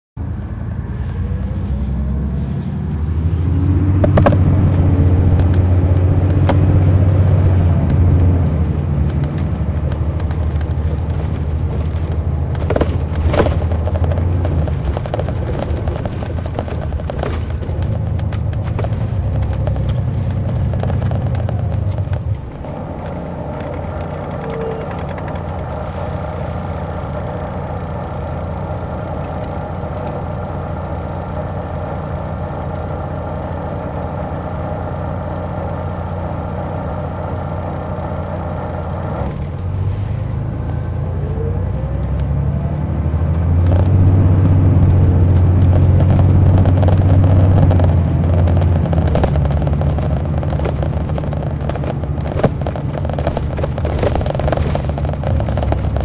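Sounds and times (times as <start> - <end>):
diesel bus engine under load: 0.2 - 56.0
knocks and rattles through bus body: 3.9 - 22.5, 23.6 - 26.6, 43.4 - 56.0.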